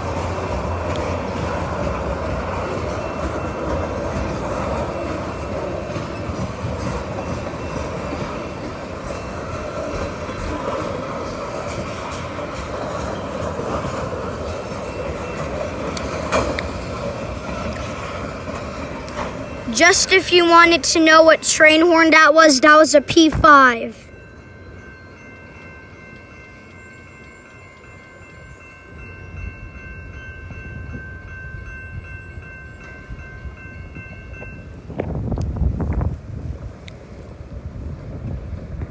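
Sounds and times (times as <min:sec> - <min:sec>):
train clank: 0:00.0 - 0:20.1
train wheels rumbling on rail: 0:00.0 - 0:38.9.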